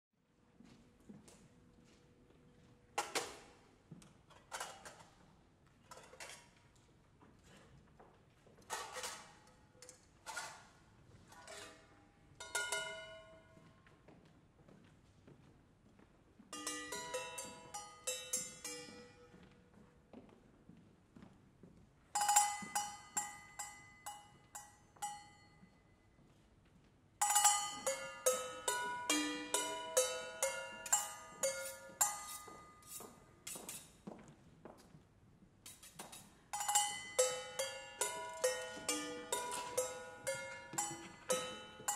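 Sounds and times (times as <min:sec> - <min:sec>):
metallic clinks on kitchenware: 0:12.4 - 0:13.4, 0:16.6 - 0:19.4, 0:22.2 - 0:25.6, 0:27.2 - 0:33.9, 0:35.7 - 0:41.9.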